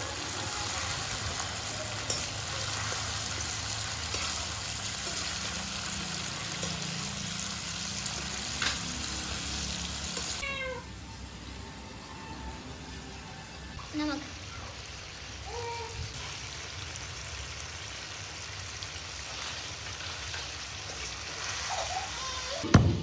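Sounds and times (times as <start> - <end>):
chicken sizzling in hot oil: 0.0 - 10.4, 13.8 - 22.6
metal spatula clinking on pan: 1.9 - 3.4.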